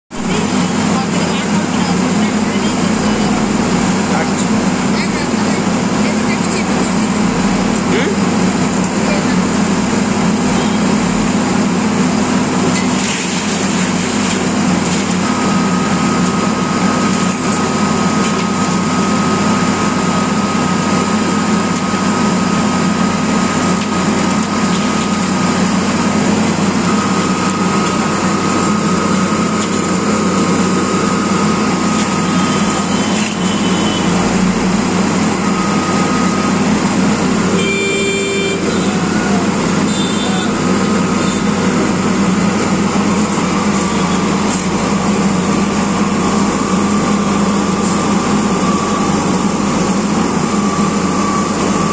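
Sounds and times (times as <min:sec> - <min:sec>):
diesel engines droning: 0:00.2 - 0:51.9
brief horn tone: 0:32.4 - 0:34.3, 0:37.5 - 0:40.6.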